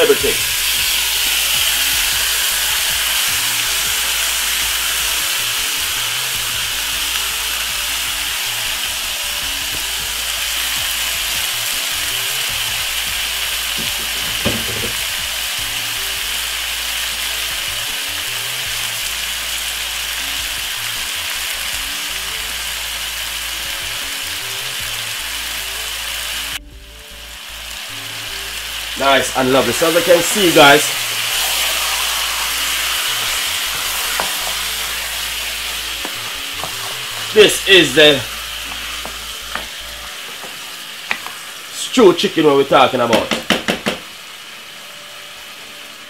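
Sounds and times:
chicken sizzling in a pot: 0.0 - 46.0.

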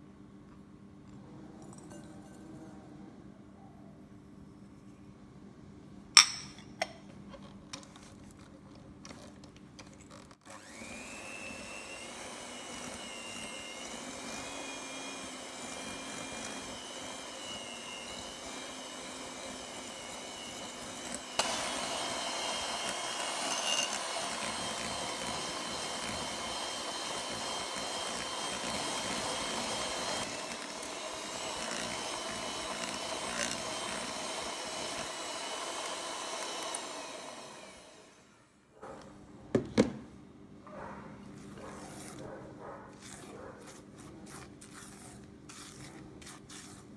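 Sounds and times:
electric mixer motor whine: 10.4 - 38.6.

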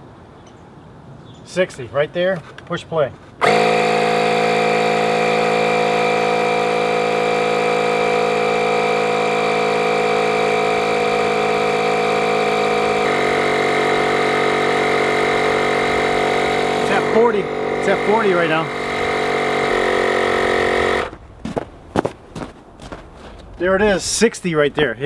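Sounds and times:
tire inflator compressor buzzing: 3.4 - 23.0.

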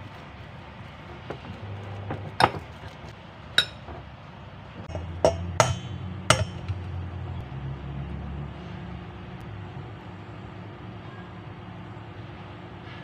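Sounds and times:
metal bowl ringing: 3.6 - 3.9, 4.9 - 7.0.

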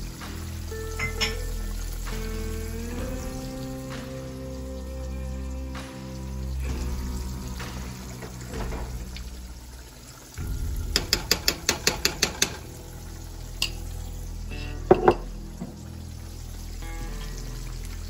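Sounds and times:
metal clinks on pot: 0.9 - 1.6.

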